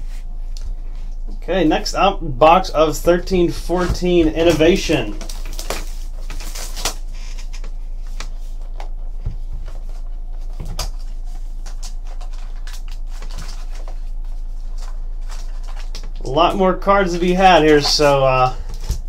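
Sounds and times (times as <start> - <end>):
low hum: 0.0 - 19.0
plastic wrap crinkling: 4.7 - 9.0, 9.7 - 16.3.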